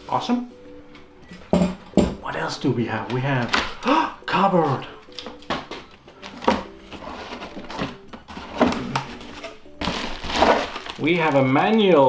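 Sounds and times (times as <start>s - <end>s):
cardboard rustling: 5.3s - 11.9s.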